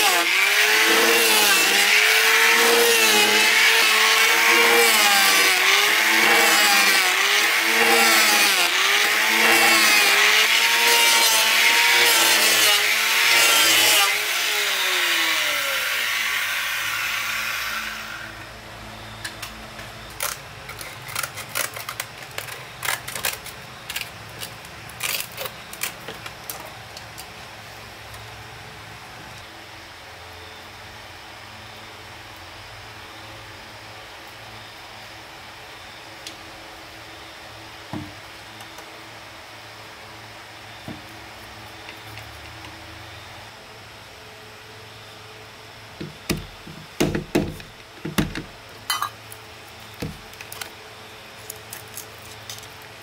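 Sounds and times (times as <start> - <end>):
electric planer shaving wood: 0.0 - 18.5.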